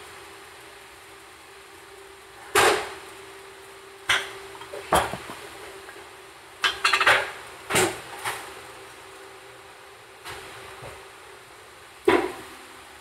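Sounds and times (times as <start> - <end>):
microwave humming: 0.0 - 13.0
dishes and utensils clattering: 4.1 - 5.4, 6.6 - 7.4.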